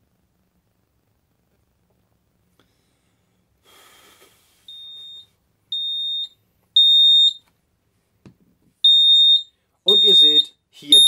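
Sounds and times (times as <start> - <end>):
breathy vapour hiss: 2.6 - 4.7
smoke detector alarm beeping: 4.7 - 7.4, 8.8 - 11.0.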